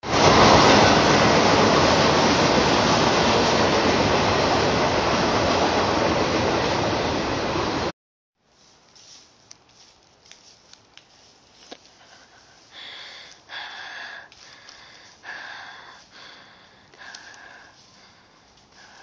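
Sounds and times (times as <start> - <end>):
person breathing heavily: 11.9 - 19.0
faint clicks: 16.9 - 17.4.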